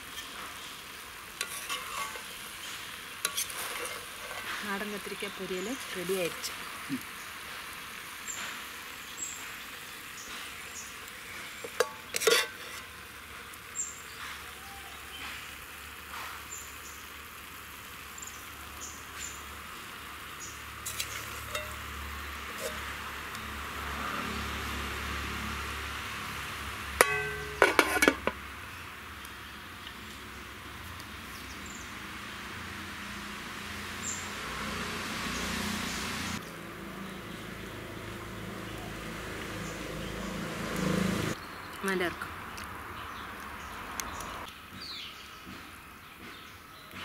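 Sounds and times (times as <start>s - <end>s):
spatula scraping metal pan: 0.0s - 0.6s, 1.4s - 4.8s, 11.3s - 13.0s, 20.8s - 23.0s, 27.0s - 28.4s
curry sizzling in a pan: 0.0s - 38.4s
metal lid clanking on pan: 11.6s - 12.8s, 20.8s - 21.8s, 27.0s - 28.4s.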